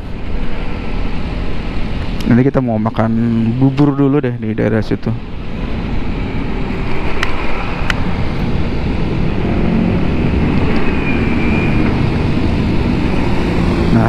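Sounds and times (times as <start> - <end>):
wind noise on microphone: 5.2 - 14.0.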